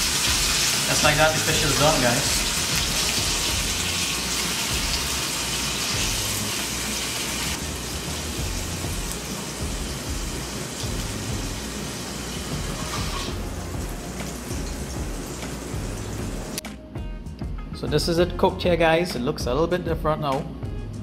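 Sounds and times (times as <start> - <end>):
fish sizzling in oil: 0.0 - 16.6.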